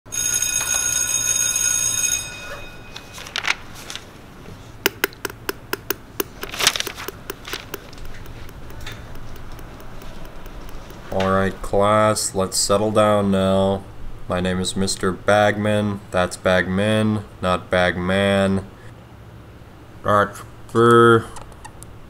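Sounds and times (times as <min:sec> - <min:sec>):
electric school bell ringing: 0:00.1 - 0:03.6
taps and clicks on hard floor: 0:04.8 - 0:11.3.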